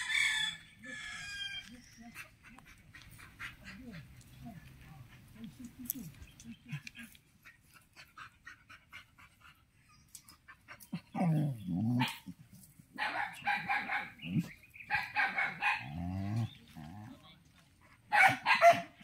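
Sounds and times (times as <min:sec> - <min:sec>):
dogs barking: 0:10.7 - 0:12.4, 0:13.0 - 0:16.5, 0:18.0 - 0:19.0.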